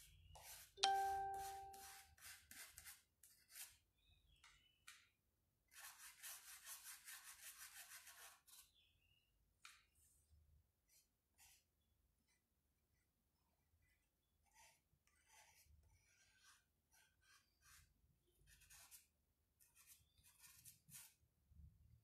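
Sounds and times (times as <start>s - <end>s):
paintbrush tapping glass jar: 0.8s - 2.0s.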